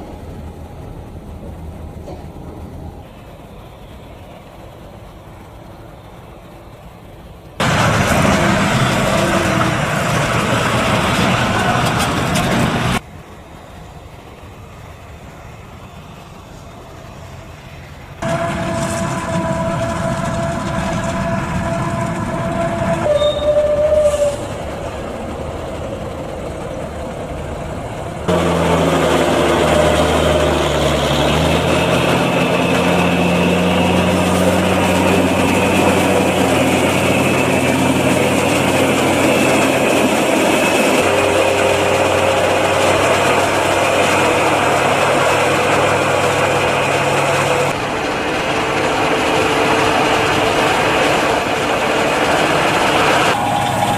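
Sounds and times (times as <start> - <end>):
forage harvester working: 0.0 - 53.9
tractor engines whining: 0.0 - 53.9
forage wagon conveyor unloading: 7.6 - 13.0, 18.2 - 25.0, 28.3 - 53.9.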